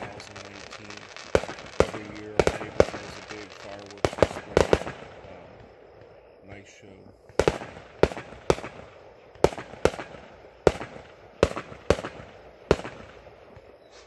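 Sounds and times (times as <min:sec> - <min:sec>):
fireworks bangs: 0:00.0 - 0:13.8.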